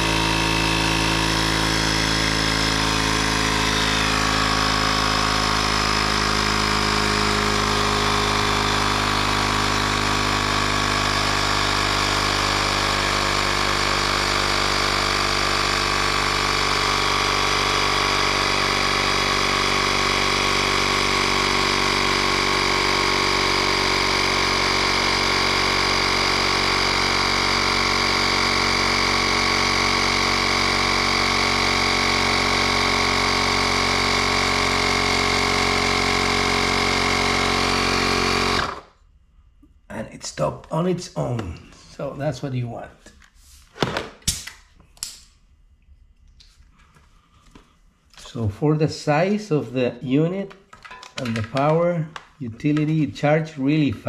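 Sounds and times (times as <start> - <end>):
electric air compressor running: 0.0 - 39.0.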